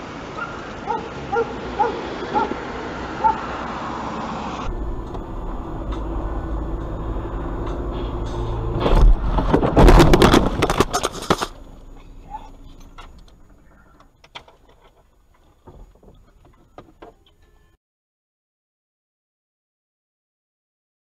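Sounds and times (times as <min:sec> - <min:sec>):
car crash bang and crunching: 0:08.6 - 0:11.7
clicks and rattles: 0:08.9 - 0:11.6, 0:12.6 - 0:17.4.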